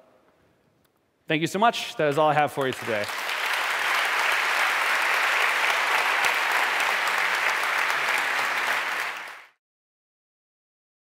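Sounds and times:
audience applauding: 2.6 - 9.6.

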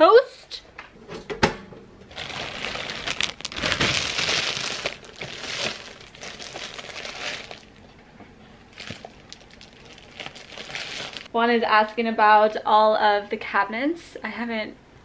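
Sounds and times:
plastic bag crinkling: 2.1 - 7.9, 8.6 - 11.3.

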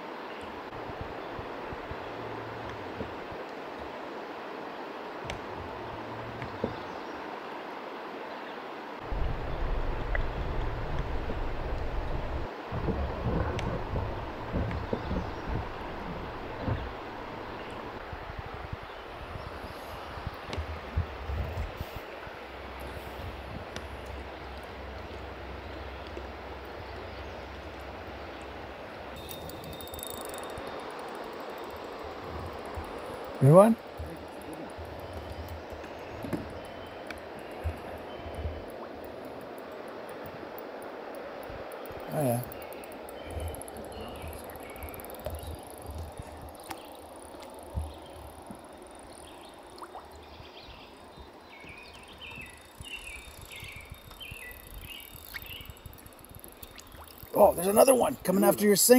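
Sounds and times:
wind rumble on microphone: 0.7 - 4.0, 9.0 - 31.0, 43.1 - 57.2
water lapping around boat: 9.1 - 58.9.

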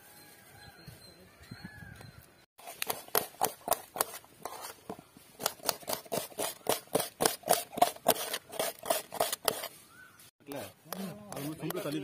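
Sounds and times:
knife chopping on steel plate: 10.9 - 11.9.

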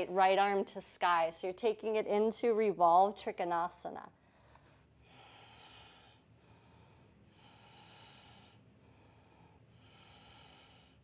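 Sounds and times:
slow breathing: 4.2 - 11.0.

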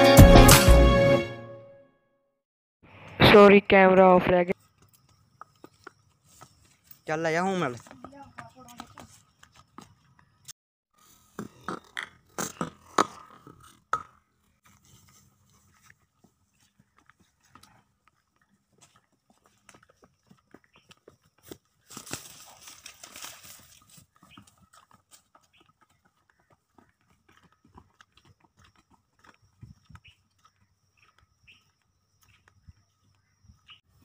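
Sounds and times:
horse hooves on hard path: 3.4 - 34.0.

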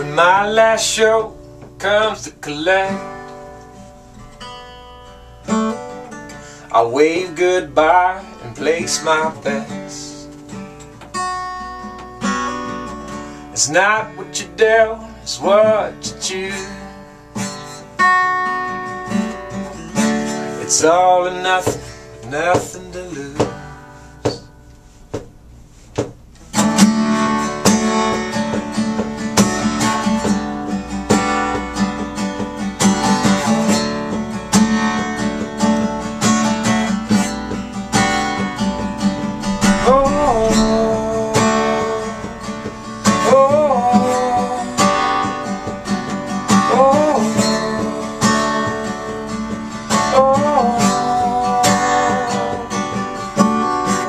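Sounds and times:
acoustic guitar strumming chords: 0.0 - 54.0
rising sliding guitar note: 37.9 - 43.4.

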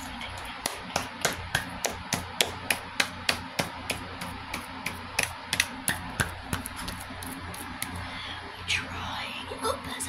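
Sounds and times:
hands patting face: 0.0 - 8.0
steady low hum: 0.0 - 10.0.

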